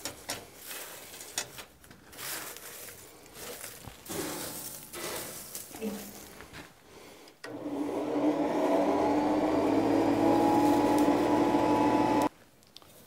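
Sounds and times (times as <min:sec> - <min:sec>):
forge blower whirring hum: 0:07.5 - 0:12.3.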